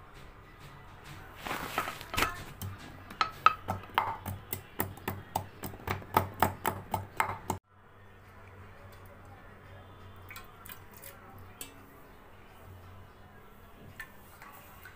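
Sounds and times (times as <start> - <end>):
pestle pounding in mortar: 2.0 - 7.6.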